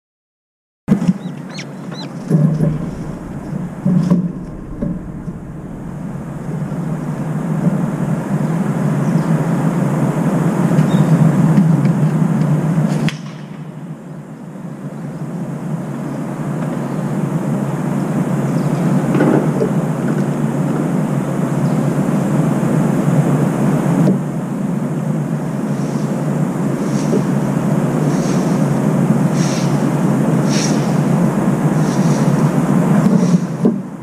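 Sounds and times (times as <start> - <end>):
urban background rumble: 0.9 - 12.8.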